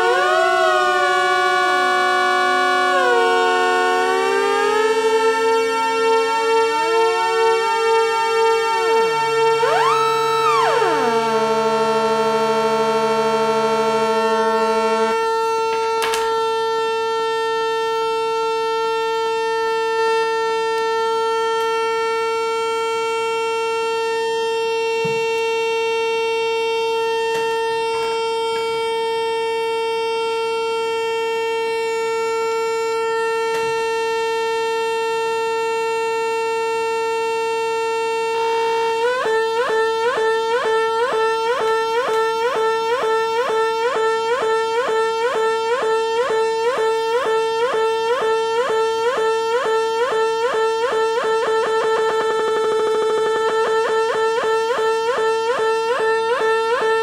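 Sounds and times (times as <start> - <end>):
buzzy electronic synth tones: 0.0 - 16.0, 51.0 - 54.7
clicks of handled wires: 15.7 - 16.4.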